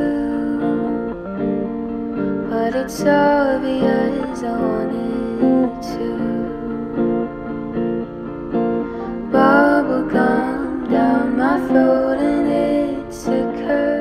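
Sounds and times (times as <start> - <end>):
acoustic guitar song: 0.0 - 14.0.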